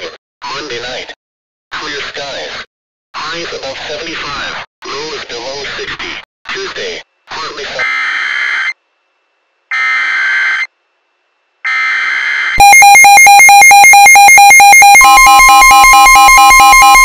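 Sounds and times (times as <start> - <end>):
rapid pulsing alarm beep: 12.6 - 17.0
steady warning tone: 12.6 - 17.0.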